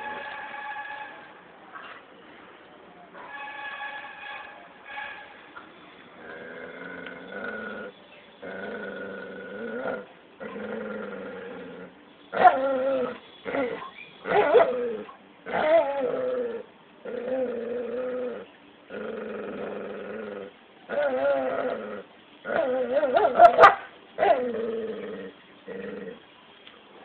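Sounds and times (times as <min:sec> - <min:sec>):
animals growling: 0:06.2 - 0:12.0, 0:14.4 - 0:23.4, 0:24.2 - 0:26.3.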